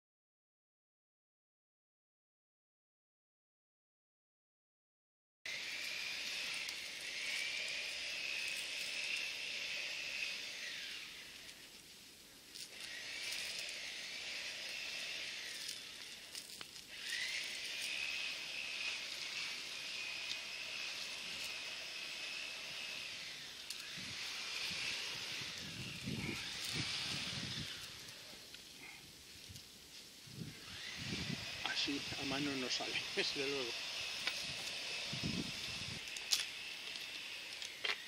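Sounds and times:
high-pitched buzzing drone: 5.5s - 11.7s, 12.6s - 28.9s, 30.3s - 38.0s.

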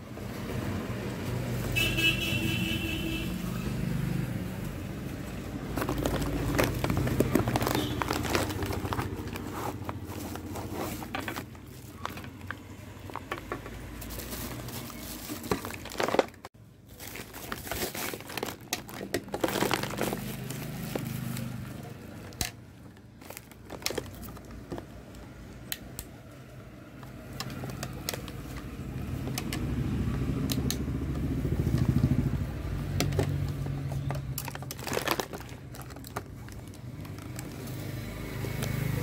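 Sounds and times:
plastic wrapping crinkling: 4.6s - 25.7s, 33.1s - 39.0s
cardboard box being opened: 5.7s - 12.5s.

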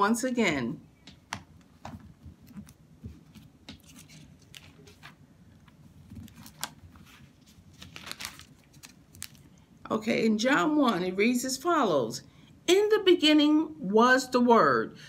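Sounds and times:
paper pages rustling: 1.8s - 9.6s.

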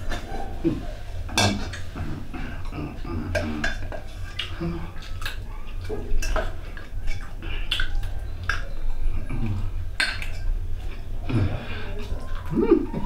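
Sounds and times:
steady low hum: 0.0s - 13.0s
clinks and scrapes on metal bowl: 1.3s - 1.9s.

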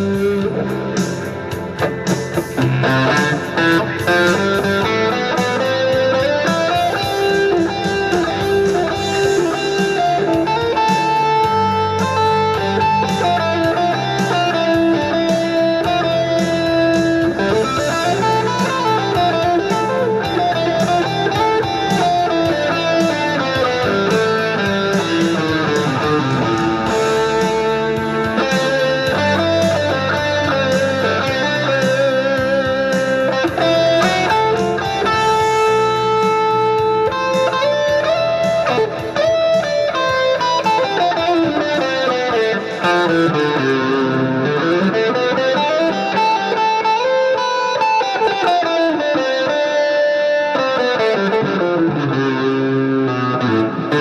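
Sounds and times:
electric guitar lead line: 0.0s - 54.0s.

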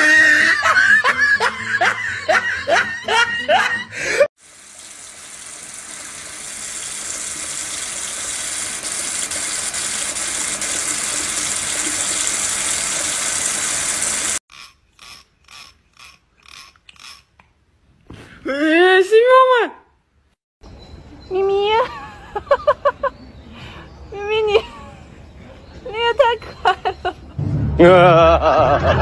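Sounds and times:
tap water running into sink: 4.4s - 14.4s.

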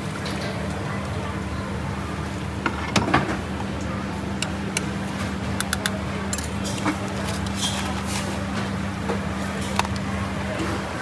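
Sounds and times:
low machine hum: 0.0s - 11.0s
utensils and crockery clinking: 5.6s - 8.7s, 9.4s - 10.9s.

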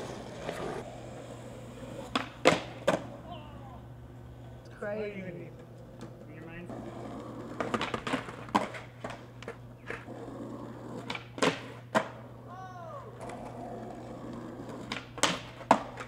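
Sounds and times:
skateboard wheels rolling on pavement: 0.0s - 16.0s
skateboard clacks on concrete: 2.0s - 3.1s, 5.6s - 10.1s, 11.0s - 12.2s, 13.2s - 16.0s.

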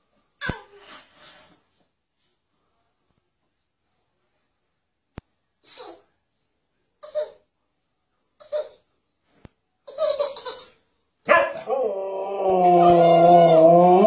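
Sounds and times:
dog howling: 11.3s - 14.0s.

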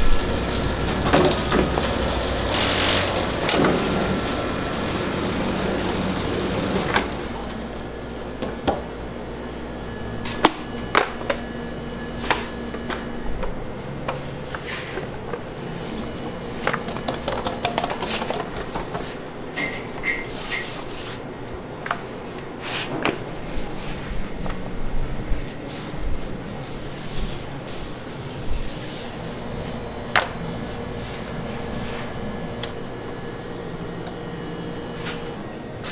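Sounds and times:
machine hum: 0.0s - 20.2s, 21.2s - 35.9s.

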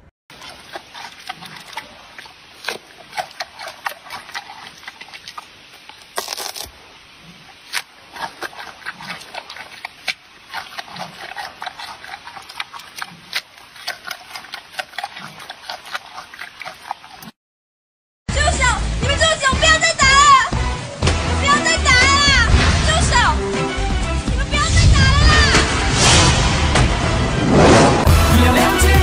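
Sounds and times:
wet munching of fruit: 0.3s - 17.4s.

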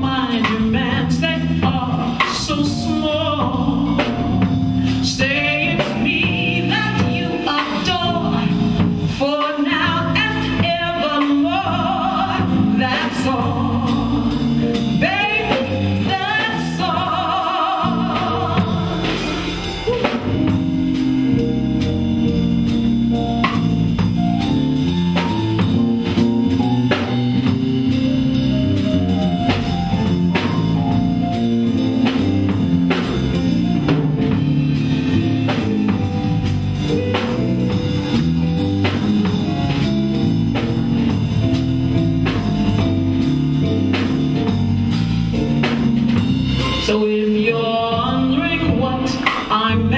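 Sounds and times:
bass line: 0.0s - 49.9s
drum kit beat: 0.0s - 49.9s
female singer with vibrato: 5.0s - 8.6s, 9.2s - 19.3s, 46.8s - 49.9s.

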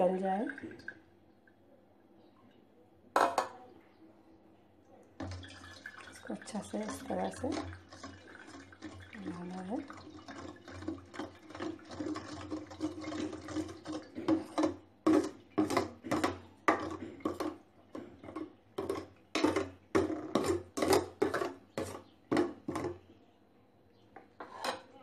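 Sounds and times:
wooden spatula scraping strainer: 6.8s - 23.0s.

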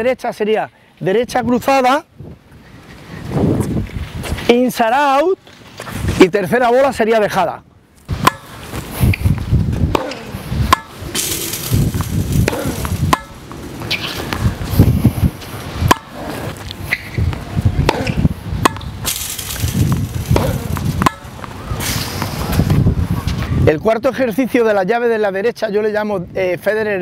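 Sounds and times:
tennis balls bouncing on court: 8.1s - 14.7s, 15.4s - 22.8s
tennis balls hit with rackets: 8.1s - 14.8s, 15.4s - 22.8s.

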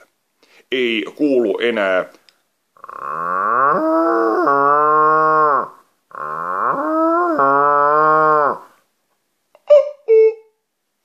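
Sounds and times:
man imitating cow mooing: 2.8s - 8.7s.

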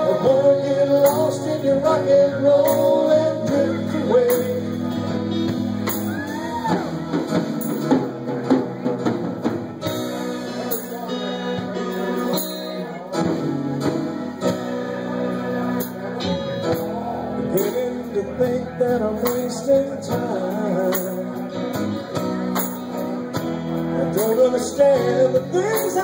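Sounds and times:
bass guitar: 0.0s - 26.0s
drum kit: 0.0s - 26.0s
electric guitar: 0.0s - 26.0s
tambourine shaken: 22.6s - 23.0s.

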